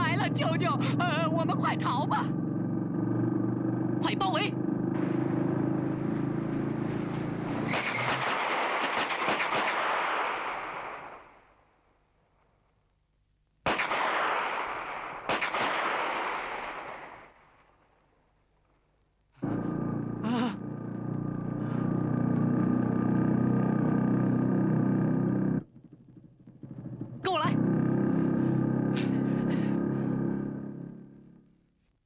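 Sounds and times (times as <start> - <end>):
motorcycle engine running: 0.0 - 8.1, 19.4 - 31.6
cartoon gunshots with echo: 7.7 - 11.2, 13.7 - 17.3.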